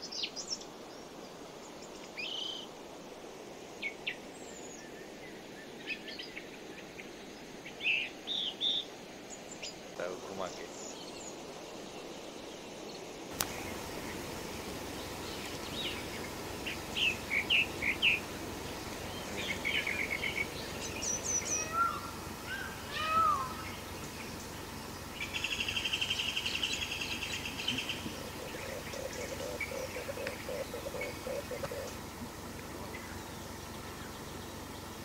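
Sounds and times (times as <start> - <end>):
background hiss: 0.0 - 35.0
birds chirping and trilling: 3.8 - 35.0.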